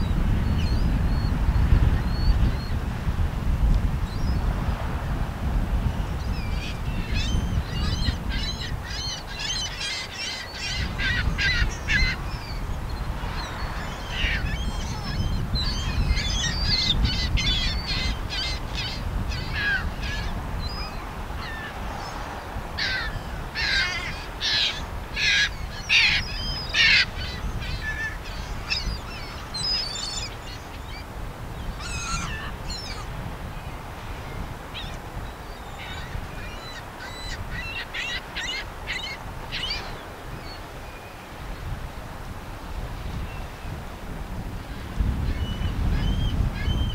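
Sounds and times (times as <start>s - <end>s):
flock of birds calling: 6.2s - 40.7s.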